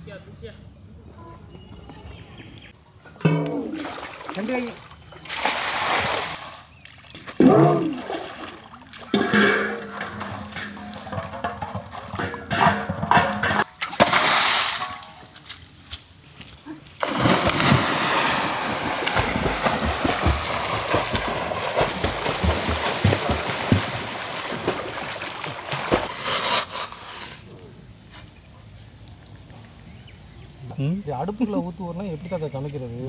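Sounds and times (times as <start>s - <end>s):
loud water splash: 3.3s - 6.6s, 13.8s - 15.2s, 17.0s - 26.2s
people swimming and splashing: 3.3s - 15.3s, 16.8s - 26.3s.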